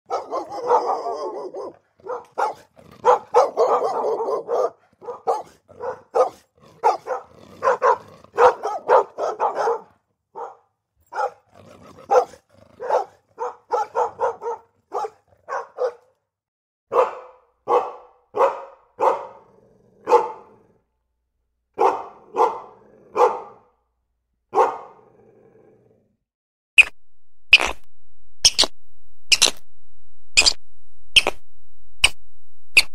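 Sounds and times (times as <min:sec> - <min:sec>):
dog barking: 0:00.1 - 0:16.2, 0:16.9 - 0:20.8, 0:21.7 - 0:23.8, 0:24.5 - 0:25.2.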